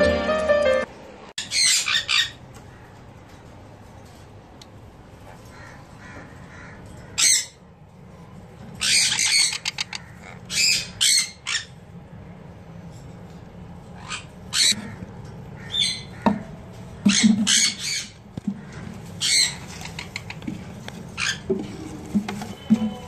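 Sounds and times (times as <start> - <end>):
parrot screeching squawks: 1.4 - 2.4, 8.8 - 11.8, 14.0 - 15.0, 15.6 - 16.2, 17.1 - 18.2.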